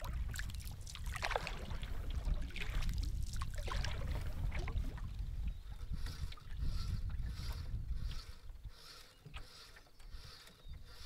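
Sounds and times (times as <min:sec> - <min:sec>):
water splashing and dripping: 0:00.0 - 0:05.2
paddle pulling through water: 0:00.0 - 0:11.0.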